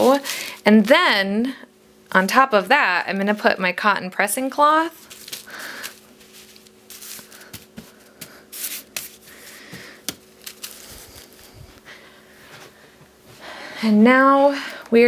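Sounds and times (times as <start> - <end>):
fabric rustling and brushing: 4.9 - 9.6, 10.4 - 11.9.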